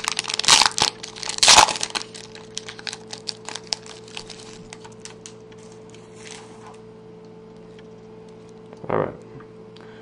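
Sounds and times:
foil wrapper crinkling and tearing: 0.0 - 6.5.

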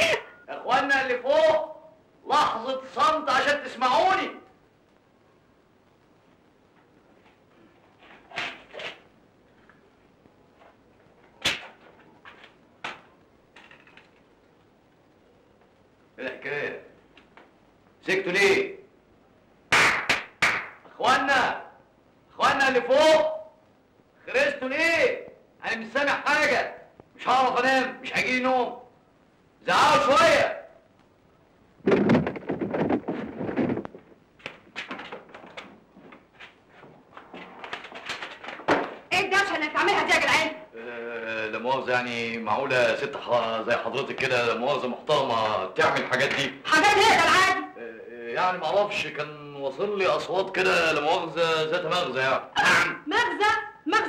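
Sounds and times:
loud burst of thumps: 31.8 - 34.0.

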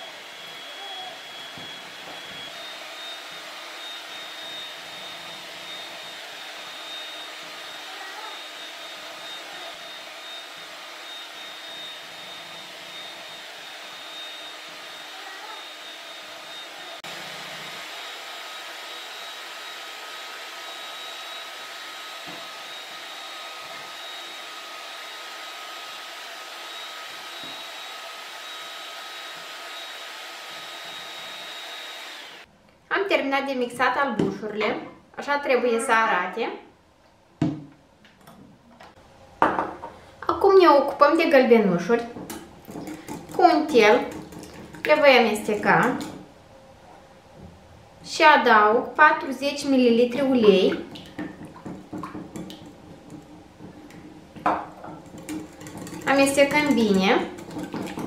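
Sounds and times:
electric hand mixer whining: 0.0 - 32.5, 41.1 - 46.2, 50.0 - 58.0.

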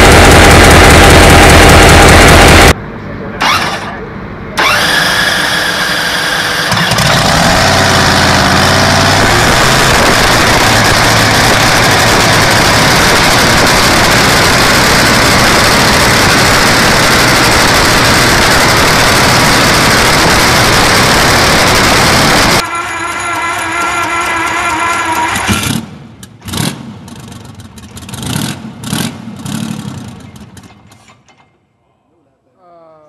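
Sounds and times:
loud engine idling: 0.0 - 26.4
starter whine: 0.0 - 28.2.

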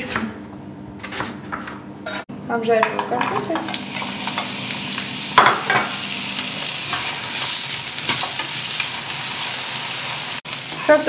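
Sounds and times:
potatoes sizzling in hot oil: 3.2 - 11.0.

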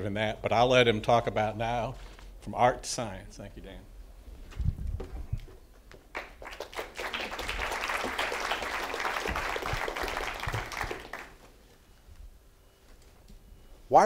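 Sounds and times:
audience applauding: 6.1 - 11.5.

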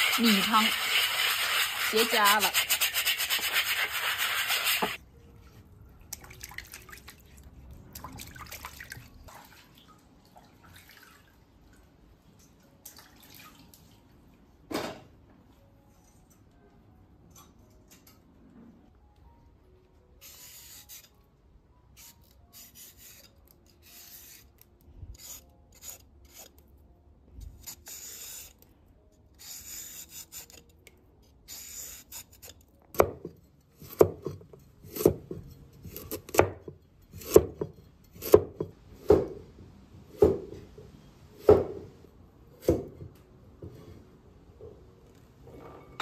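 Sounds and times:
scrubbing and scraping a cooking pot: 0.0 - 5.0.

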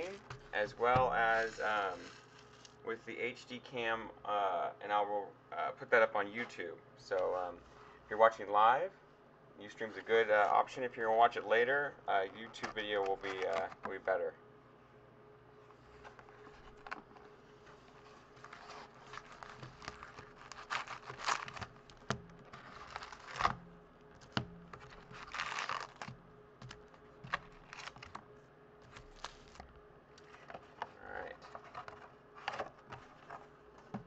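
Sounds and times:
foil card packs crinkling: 0.0 - 2.8, 12.2 - 14.1, 15.8 - 23.6, 24.2 - 28.2, 28.9 - 34.0.

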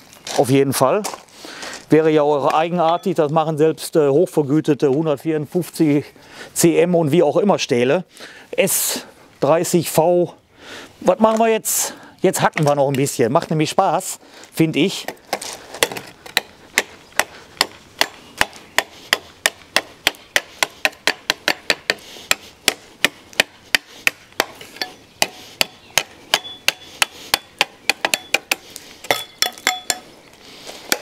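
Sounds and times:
knife chopping into hard wood: 15.1 - 30.0.

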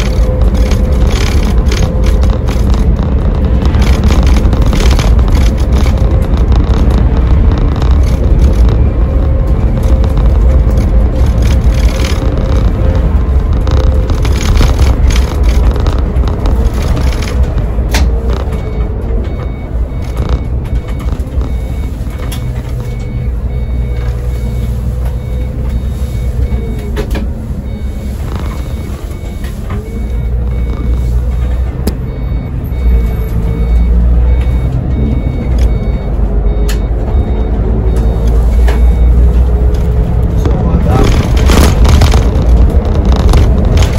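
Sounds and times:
bus engine rumble: 0.0 - 43.9
road noise: 0.0 - 43.9
faint repeating beep: 18.4 - 27.0, 27.6 - 31.1, 31.9 - 39.4.

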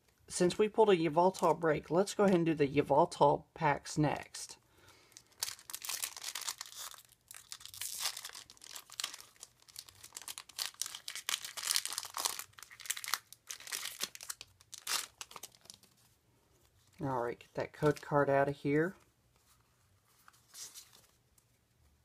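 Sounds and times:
foil wrapper crinkling and tearing: 5.1 - 16.0
cards rustling: 5.2 - 17.1, 17.7 - 21.7.

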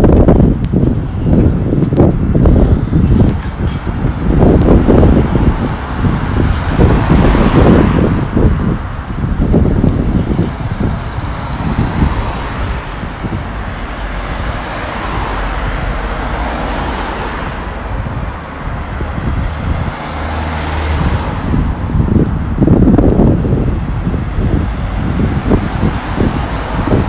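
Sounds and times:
cars passing on road: 0.0 - 27.0
wind buffeting microphone: 0.0 - 27.0.

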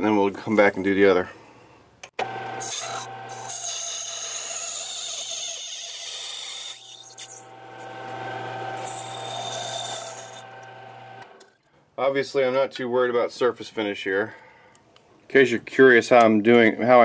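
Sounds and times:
lathe motor hum with gear whine: 2.2 - 3.4, 7.4 - 11.4.

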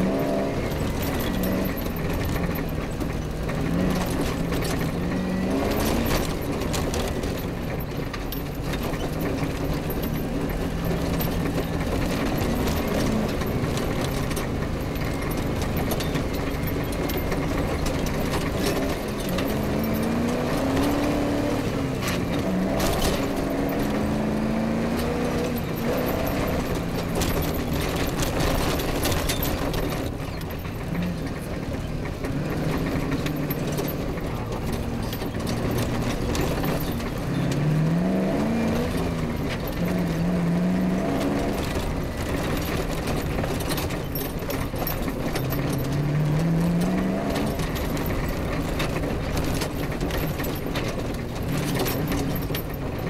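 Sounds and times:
rally car engine revving: 0.0 - 53.0
vehicle knocking over bumps: 0.0 - 53.0.

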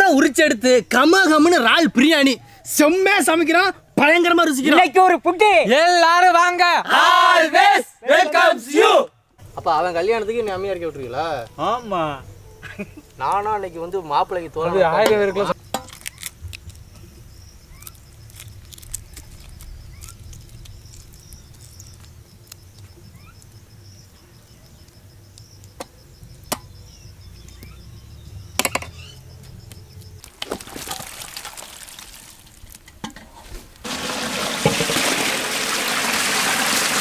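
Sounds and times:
water gushing from a pipe: 30.3 - 32.7, 33.8 - 37.0.

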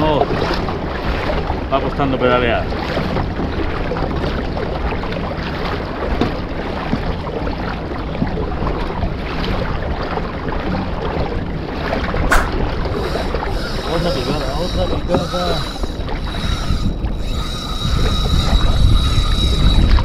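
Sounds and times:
water lapping against a hull: 0.0 - 20.0
wind noise on microphone: 12.2 - 20.0
sharp knock: 12.3 - 12.6.

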